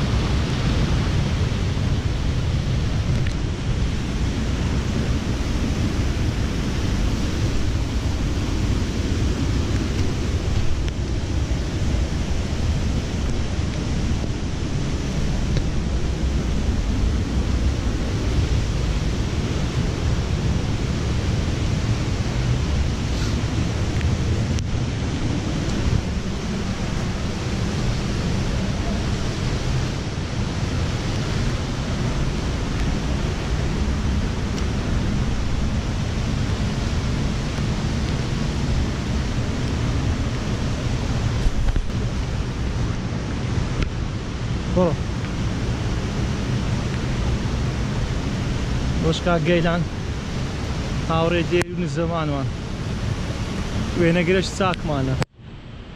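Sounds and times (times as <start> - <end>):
stream rushing: 0.0 - 55.9
wind on microphone: 0.0 - 55.9.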